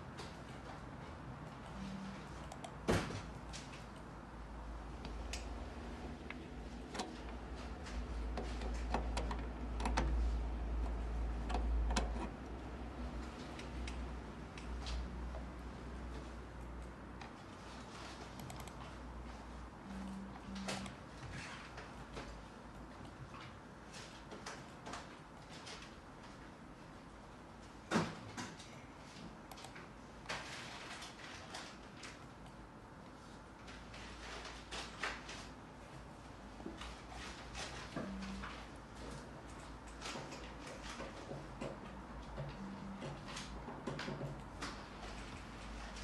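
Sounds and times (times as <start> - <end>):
steady low hum: 0.0 - 24.3, 35.5 - 46.0.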